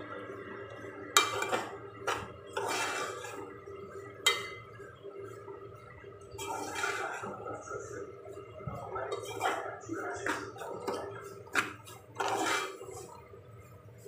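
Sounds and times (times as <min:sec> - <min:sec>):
spoon scraping through grains: 0:02.5 - 0:03.4, 0:06.4 - 0:07.4, 0:11.2 - 0:13.1
spoon clinking against metal pot: 0:04.2 - 0:04.7.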